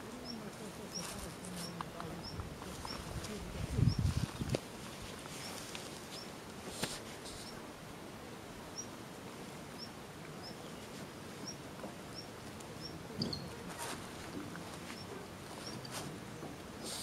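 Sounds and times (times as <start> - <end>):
small bird chirping: 0.2 - 3.1, 8.7 - 8.9, 11.4 - 13.6.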